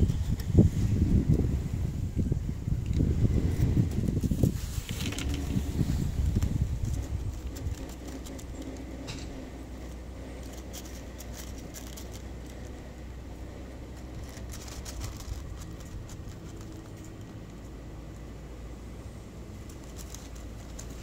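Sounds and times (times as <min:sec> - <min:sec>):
low background rumble: 0:00.0 - 0:21.0
cat crunching dry kibble: 0:02.8 - 0:18.4, 0:19.4 - 0:21.0.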